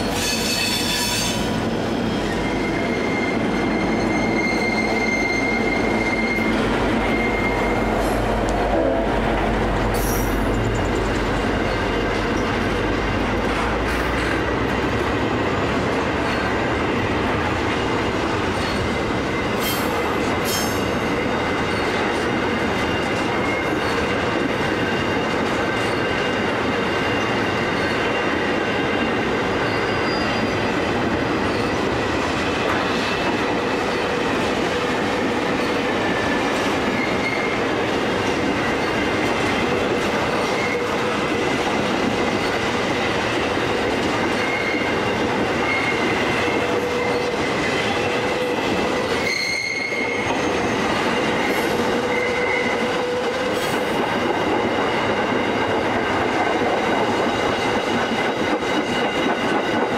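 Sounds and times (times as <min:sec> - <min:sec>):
thin squealing tones: 0:00.0 - 0:08.4, 0:29.6 - 0:30.8, 0:44.3 - 0:52.9
diesel locomotive drone: 0:00.0 - 0:59.9
train wheels rumbling on rail: 0:00.0 - 0:59.9.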